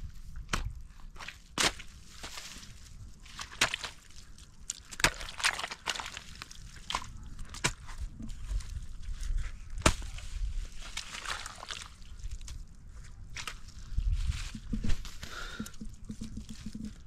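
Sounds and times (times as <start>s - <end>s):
hoe chopping wet mud: 0.4s - 2.7s, 3.3s - 8.1s, 9.7s - 10.2s, 10.8s - 12.0s.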